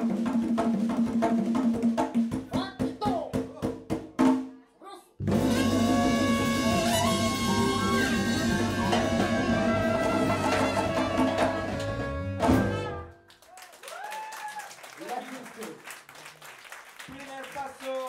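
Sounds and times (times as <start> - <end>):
latin jazz band playing: 5.2 - 13.2.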